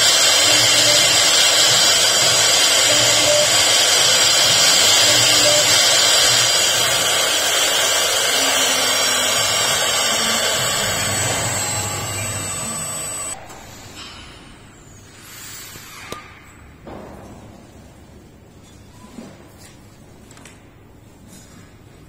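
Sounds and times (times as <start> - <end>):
router spindle high whine: 0.0 - 13.4.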